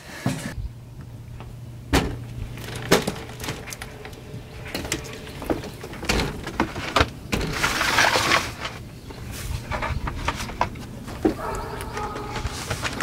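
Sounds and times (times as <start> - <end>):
boot footsteps on wooden deck: 11.1 - 13.0.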